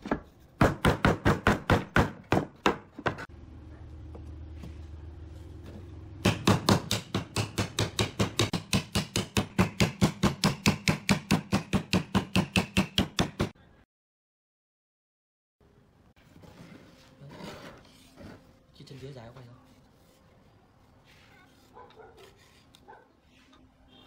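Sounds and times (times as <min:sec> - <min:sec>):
rapid sharp knocks: 0:06.2 - 0:13.5.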